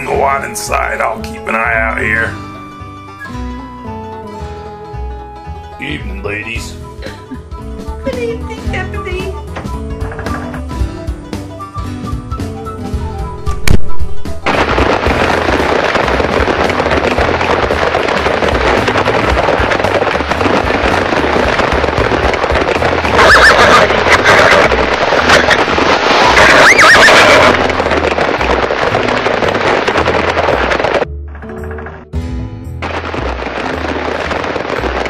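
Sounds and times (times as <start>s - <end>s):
hooves and wagon wheels clattering: 7.2s - 11.0s, 14.2s - 31.1s, 32.8s - 35.0s
horses whinnying: 23.0s - 28.0s.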